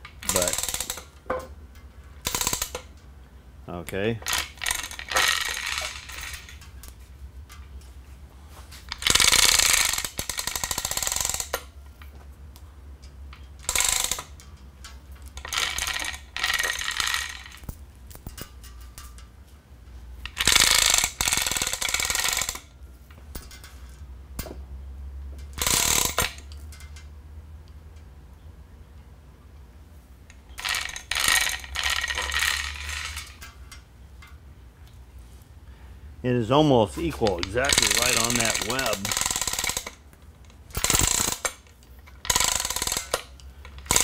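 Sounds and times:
hoist chain clattering: 0.1s - 1.5s, 4.2s - 7.6s, 13.0s - 19.2s, 30.5s - 34.4s, 36.9s - 44.0s.

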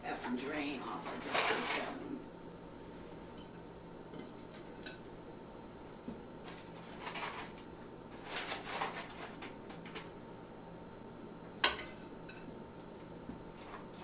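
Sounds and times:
rustling scraping noises: 0.9s - 2.1s, 6.4s - 9.6s.

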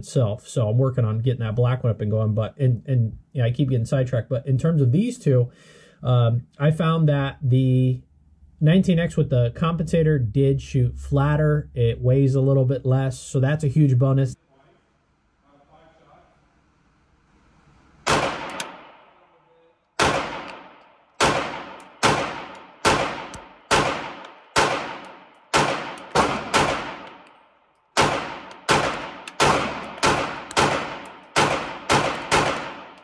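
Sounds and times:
pistol shots ringing indoors: 18.0s - 19.2s, 20.0s - 33.0s.

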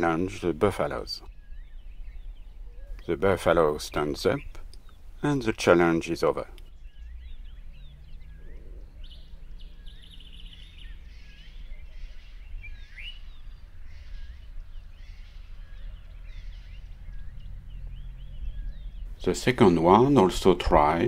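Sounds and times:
birds chirping and trilling: 0.0s - 21.0s
steady low rumble: 6.5s - 21.0s.

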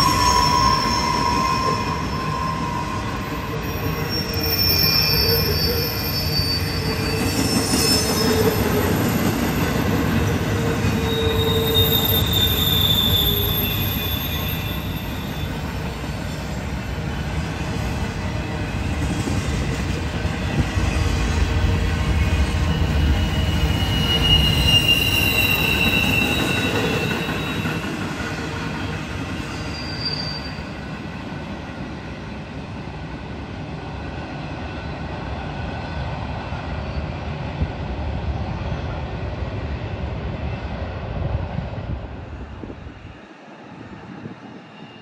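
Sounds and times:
wheels squealing on rails: 0.0s - 32.4s, 42.6s - 45.0s
freight train rumbling past: 0.0s - 45.0s.

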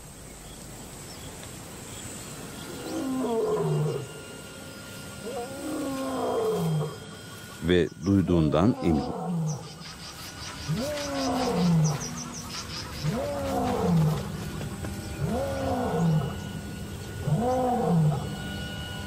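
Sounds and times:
lion roaring: 2.7s - 4.2s, 5.2s - 7.2s, 8.3s - 9.8s, 10.6s - 18.5s.

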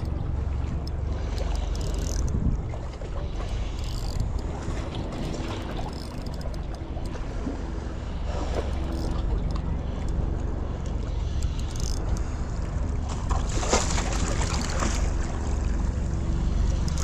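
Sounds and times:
fishing reel whirring: 0.0s - 2.7s, 3.3s - 13.0s, 16.4s - 17.0s
wind on microphone: 0.0s - 5.9s.

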